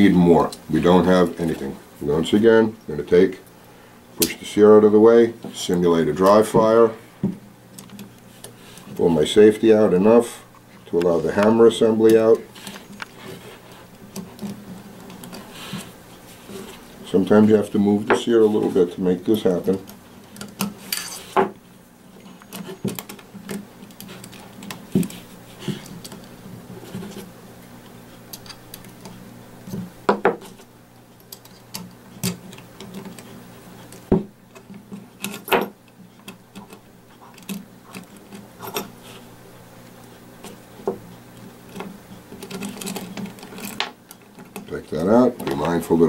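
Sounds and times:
steady low hum: 0.0s - 46.0s.

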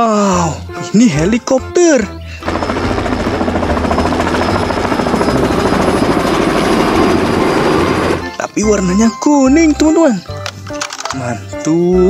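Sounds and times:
helicopter engine noise: 2.4s - 8.4s
helicopter rotor blades beating: 2.4s - 9.0s.

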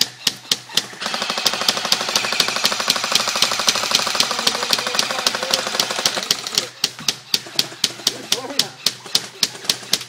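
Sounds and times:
airsoft rifle firing full-auto: 0.8s - 6.6s.

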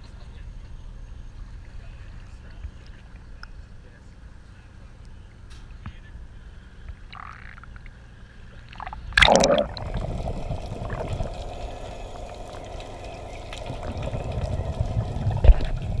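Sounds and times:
faint steady hum: 0.0s - 16.0s
underwater gurgling: 7.1s - 7.9s, 8.5s - 16.0s
loud splash: 8.8s - 11.3s.

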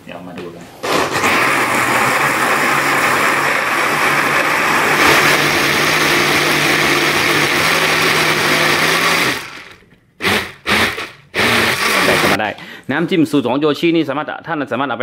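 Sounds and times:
electric blender running: 0.8s - 12.4s.

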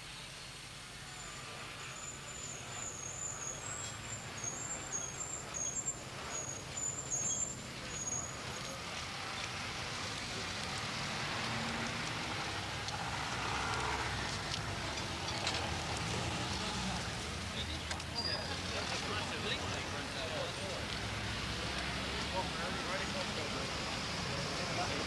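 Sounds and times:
vehicles passing: 0.5s - 25.0s.

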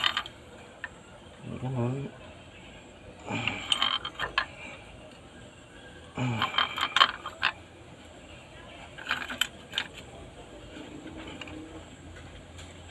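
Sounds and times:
wrench clicking and creaking: 3.4s - 4.5s, 6.2s - 7.6s.

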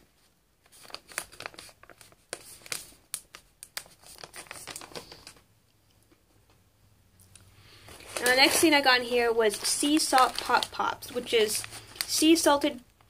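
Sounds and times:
plastic pouch crinkling: 0.6s - 5.4s, 7.7s - 12.7s.

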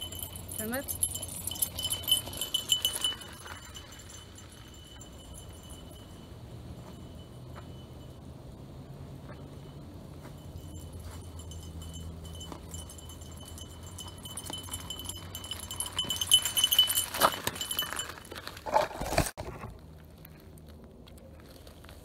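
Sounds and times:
metallic rattling and clinking: 0.0s - 8.2s, 10.3s - 18.7s
bike rolling over gravel: 1.1s - 5.8s, 12.3s - 20.2s.

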